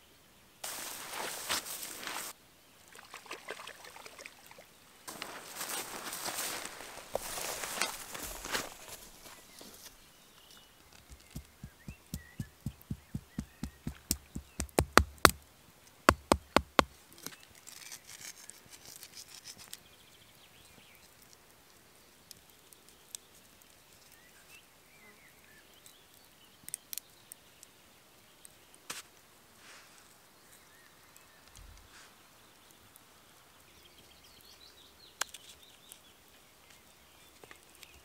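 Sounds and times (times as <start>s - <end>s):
sharp knocks: 11.3s - 15.4s, 16.1s - 16.9s.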